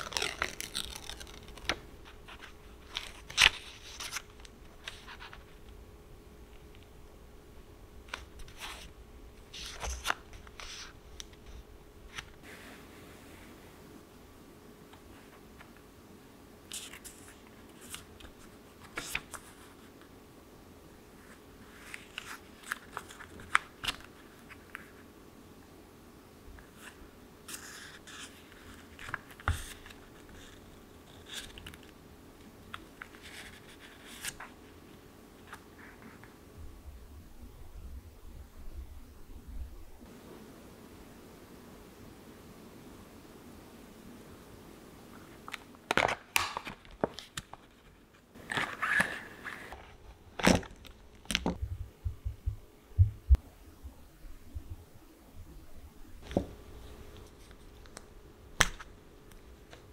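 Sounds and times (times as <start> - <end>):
plastic packaging crinkling: 0.0 - 5.1
paper rustling and flipping: 0.0 - 5.8, 8.1 - 12.6, 16.7 - 20.0, 21.2 - 25.1, 26.6 - 32.0, 32.6 - 36.4, 45.1 - 51.6, 56.2 - 59.9.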